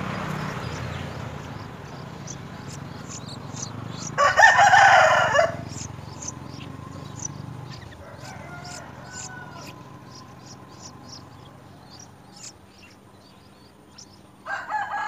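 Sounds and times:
high bird chirps: 0:00.0 - 0:14.4
rooster crowing: 0:04.0 - 0:06.4, 0:07.7 - 0:10.7, 0:14.4 - 0:15.0.

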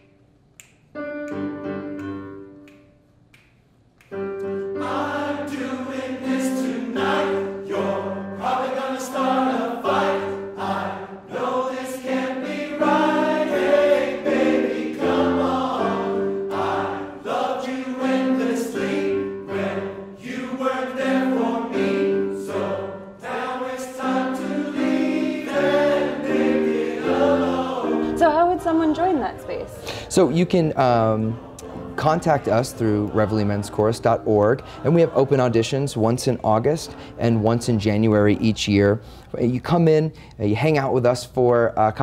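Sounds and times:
men's chorus singing in harmony: 0:04.8 - 0:28.2, 0:29.4 - 0:36.3.

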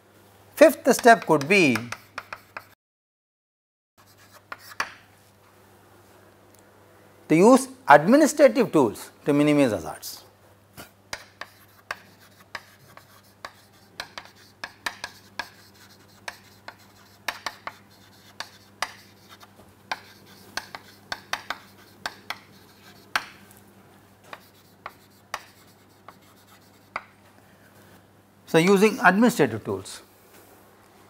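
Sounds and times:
chalk writing on chalkboard: 0:00.9 - 0:02.8, 0:04.0 - 0:05.0, 0:10.8 - 0:23.4, 0:24.3 - 0:27.2.

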